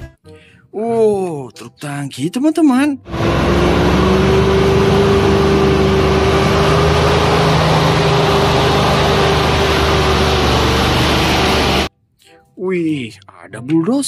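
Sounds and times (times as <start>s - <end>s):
diesel truck engine labouring: 3.1s - 11.9s.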